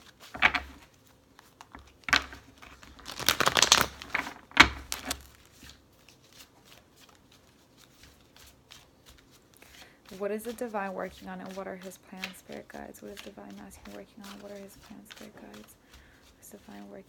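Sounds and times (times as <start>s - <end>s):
cards being shuffled: 0.0s - 17.0s.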